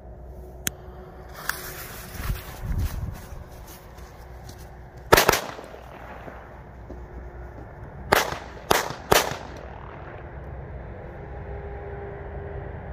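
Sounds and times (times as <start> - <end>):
firecrackers banging: 5.1 - 10.4.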